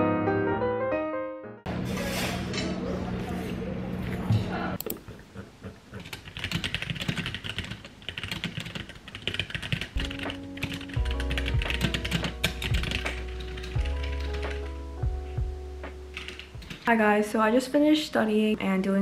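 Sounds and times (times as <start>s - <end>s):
rapid typing on keyboard: 6.0s - 14.7s, 16.1s - 17.0s
soft background music: 9.9s - 19.0s.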